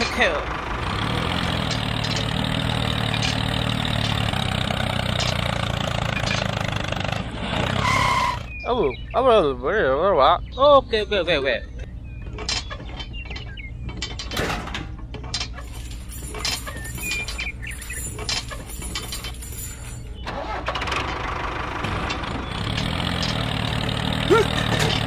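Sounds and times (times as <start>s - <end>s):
engine idling: 0.0s - 9.2s, 11.8s - 25.0s
model tractor being handled: 1.5s - 6.8s, 12.2s - 25.0s.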